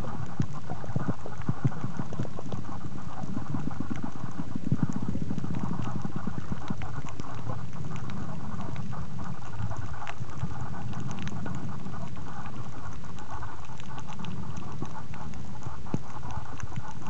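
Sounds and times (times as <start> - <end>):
low underwater crackling: 0.0 - 17.0
muffled hiss: 0.0 - 17.0.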